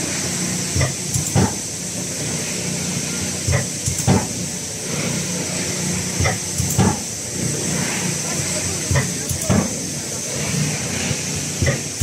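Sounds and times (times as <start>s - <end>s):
machine hum and hiss: 0.0s - 12.0s
machine thumps with air hiss: 0.7s - 1.8s, 3.0s - 5.2s, 6.0s - 7.8s, 8.6s - 9.9s, 11.1s - 12.0s.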